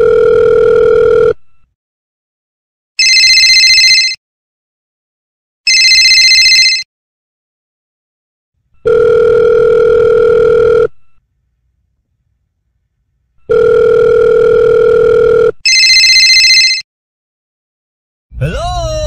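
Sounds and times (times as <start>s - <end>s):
telephone ringing tones: 0.0s - 1.7s, 3.0s - 4.2s, 5.7s - 6.9s, 8.8s - 11.2s, 13.4s - 16.8s
shrill trilling phone ring: 3.0s - 4.2s, 5.7s - 6.9s, 13.5s - 16.8s.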